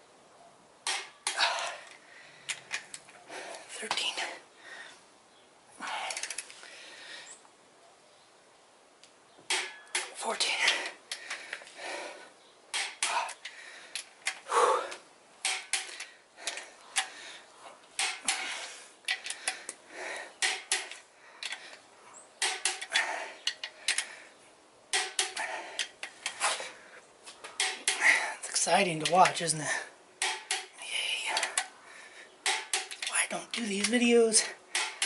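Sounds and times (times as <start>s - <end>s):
torque wrench clicking: 6.0s - 6.5s, 12.7s - 14.4s, 15.4s - 17.1s, 20.4s - 21.6s, 22.4s - 24.1s, 24.9s - 26.4s, 30.2s - 31.7s, 32.4s - 35.0s.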